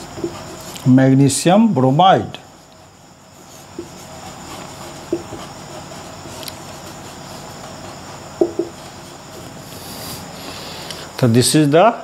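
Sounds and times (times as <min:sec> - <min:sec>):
marker scratching on whiteboard: 0:00.0 - 0:00.9, 0:02.5 - 0:10.2
background hiss: 0:00.0 - 0:12.0
marker squeaks: 0:03.3 - 0:09.4.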